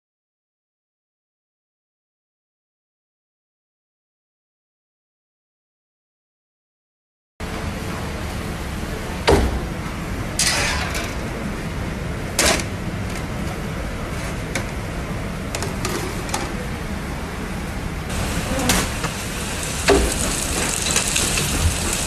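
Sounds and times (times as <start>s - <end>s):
steady low hum: 7.4s - 22.0s
metal clanks from grill oven: 10.4s - 11.3s, 19.8s - 22.0s.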